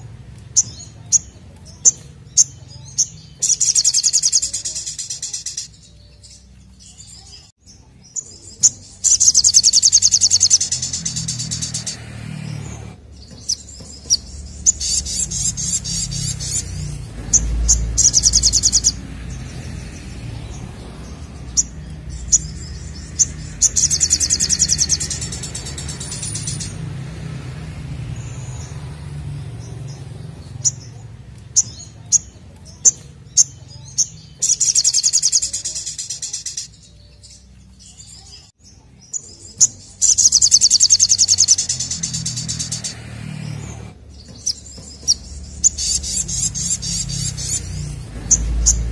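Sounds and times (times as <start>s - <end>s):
bird sharp chips: 0.4s - 27.0s, 29.5s - 38.5s, 39.1s - 48.9s
bird high trills: 8.6s - 19.1s, 21.5s - 26.8s.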